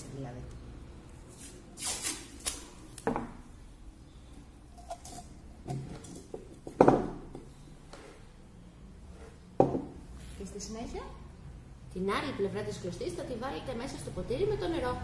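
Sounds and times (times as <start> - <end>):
glass and tape knocking on table: 6.6 - 7.4, 9.6 - 10.0.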